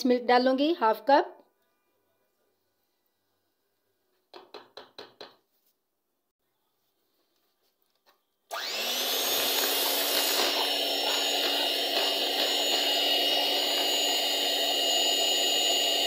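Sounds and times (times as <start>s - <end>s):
electric hand mixer whining: 8.5s - 16.0s.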